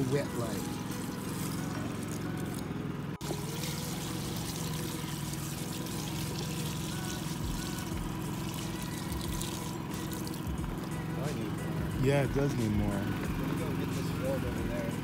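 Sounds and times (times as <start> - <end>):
generator humming: 0.0 - 15.0
water pouring onto clothes: 0.5 - 10.9.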